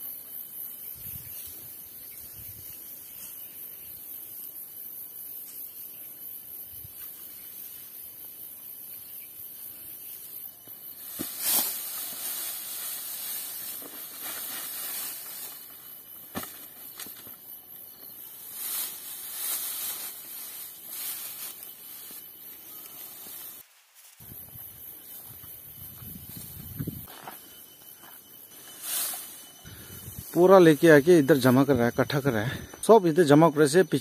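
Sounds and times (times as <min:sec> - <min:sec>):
steady high hiss: 0:00.0 - 0:34.0
rustling of rice stalks: 0:11.0 - 0:17.2, 0:18.2 - 0:24.3, 0:28.6 - 0:30.4.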